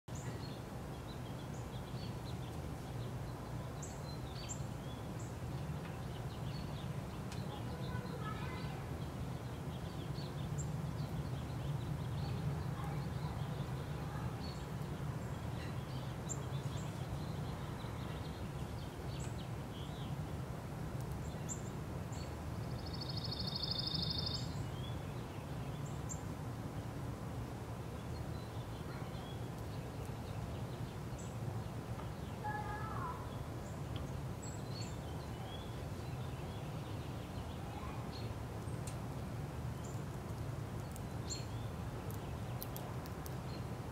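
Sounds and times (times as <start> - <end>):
faint bird calls: 32.4 - 33.8.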